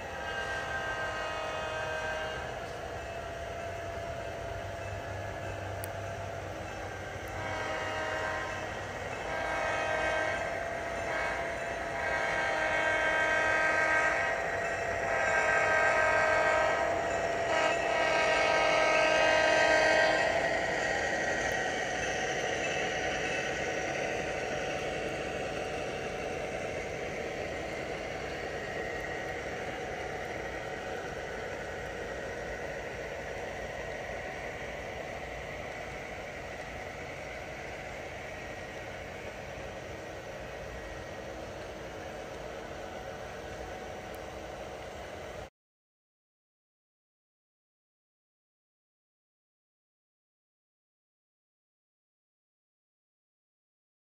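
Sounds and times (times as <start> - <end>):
model locomotive horn blasts: 0.0 - 4.0, 6.8 - 20.5
locomotive rumble and hiss: 0.0 - 45.5.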